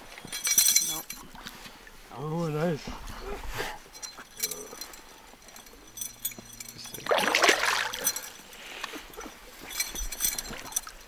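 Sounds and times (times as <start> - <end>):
fish splashing at surface: 7.0 - 8.3.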